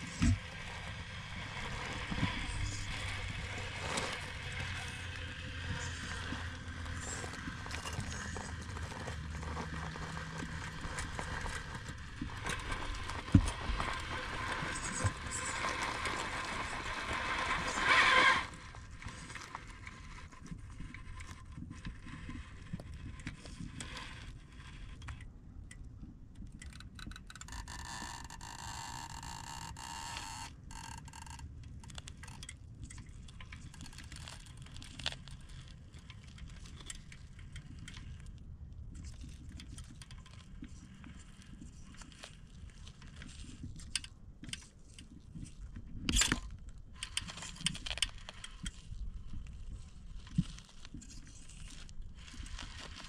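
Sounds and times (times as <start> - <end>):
toy car gear whine: 0.0 - 21.4, 26.7 - 32.5
scattered clicks: 24.9 - 38.3.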